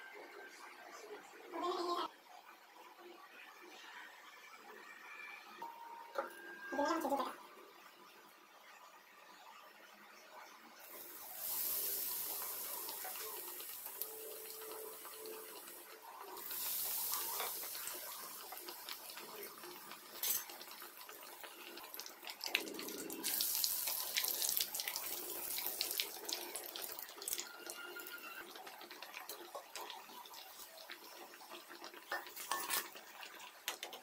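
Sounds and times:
bread sizzling in hot oil: 10.8s - 34.0s
oil crackling and popping: 10.9s - 34.0s.

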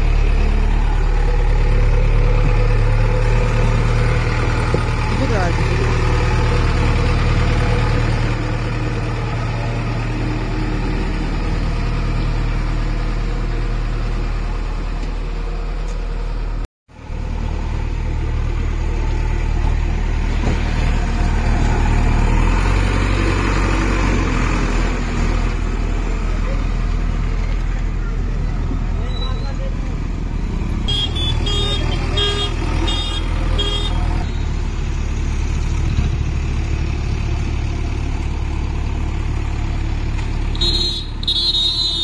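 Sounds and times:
diesel engine idling: 0.0s - 42.0s.

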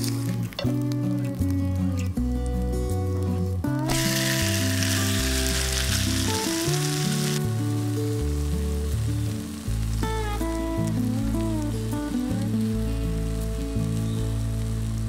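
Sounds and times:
background music with bass: 0.0s - 15.0s
sandwich sizzling in oil: 3.8s - 15.0s.

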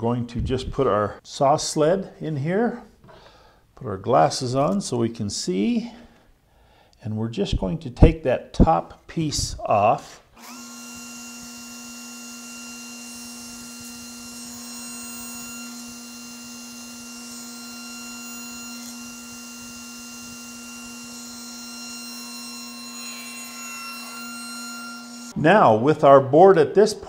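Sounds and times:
saw blade cutting board: 10.4s - 25.4s
table saw running: 10.4s - 25.4s.

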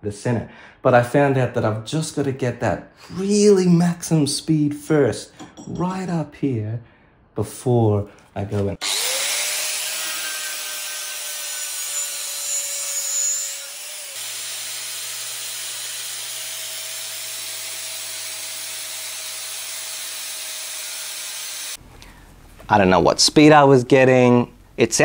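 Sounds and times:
angle grinder whine: 8.8s - 21.8s.

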